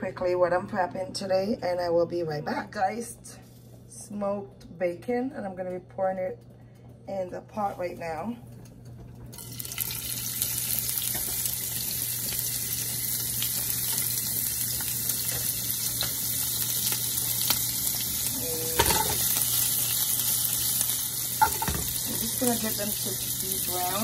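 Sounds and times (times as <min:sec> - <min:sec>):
bacon sizzling in a pan: 0:09.3 - 0:24.0.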